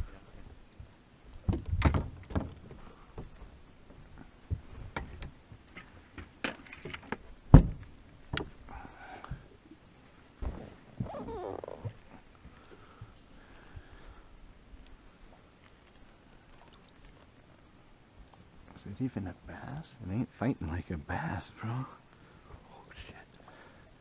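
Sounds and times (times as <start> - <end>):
fishing gear knocks and rattles: 1.4 - 8.6.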